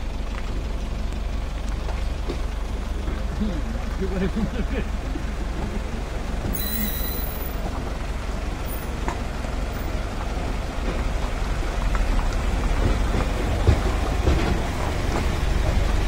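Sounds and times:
car engine and tyres rumbling: 0.0s - 16.0s
brief high-pitched sound: 6.6s - 7.6s.

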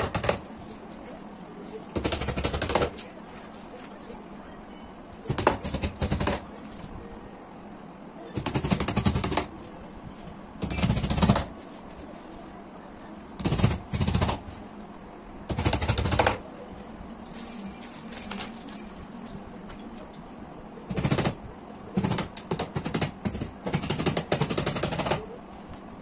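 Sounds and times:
hammer tapping nails into board: 22.0s - 25.2s.

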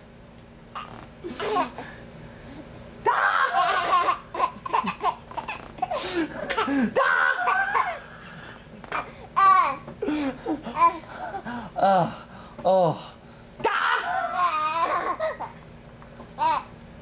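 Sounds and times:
baby laughing: 3.3s - 8.2s, 14.0s - 15.6s.

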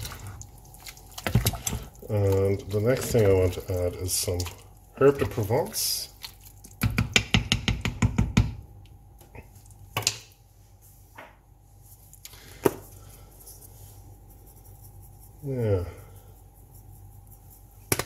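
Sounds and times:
wooden spoon stirring stew: 0.0s - 8.0s
spoon knocking against pot: 6.8s - 8.6s.

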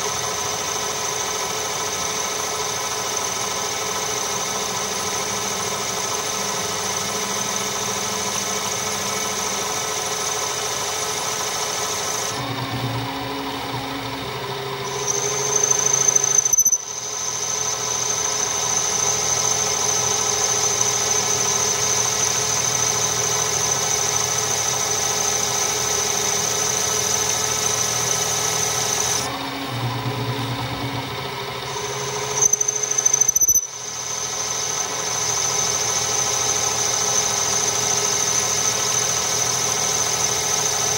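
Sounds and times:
lathe machine hum: 0.0s - 40.9s
high cutting squeal: 12.0s - 40.9s.

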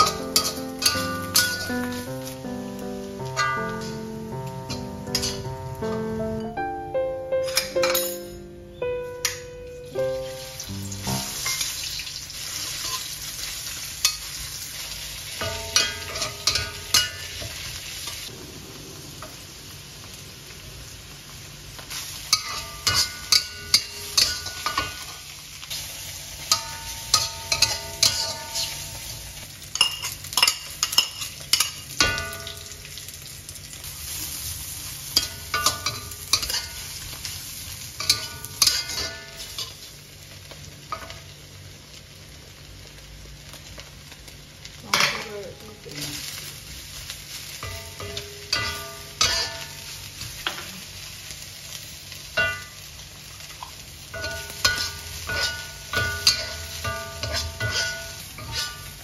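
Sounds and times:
metal spatula scraping wok: 0.0s - 2.1s, 4.6s - 5.6s, 11.1s - 14.3s, 15.4s - 18.3s, 22.3s - 31.8s, 35.1s - 37.0s, 38.0s - 39.8s, 47.6s - 50.6s, 54.2s - 59.0s
mushrooms sizzling in wok: 0.0s - 59.0s.

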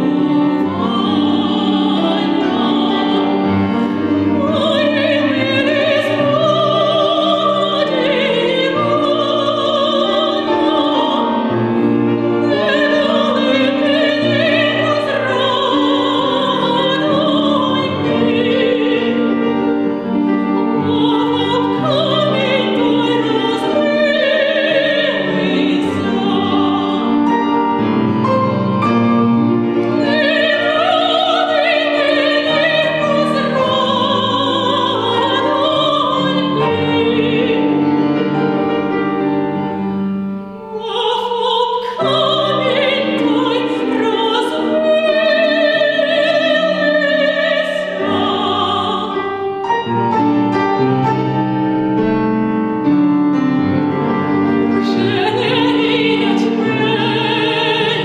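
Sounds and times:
woman singing operatically: 0.0s - 11.5s, 12.4s - 19.4s, 20.7s - 27.3s, 30.0s - 37.8s, 40.7s - 49.3s, 54.8s - 58.0s
grand piano: 0.0s - 58.0s.

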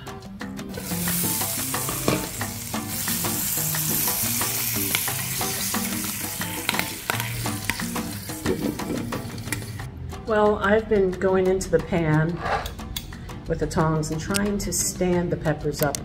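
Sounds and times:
background music: 0.0s - 16.0s
peppers sizzling in a frying pan: 0.8s - 9.8s
metal tongs clicking against pan: 6.6s - 7.8s.

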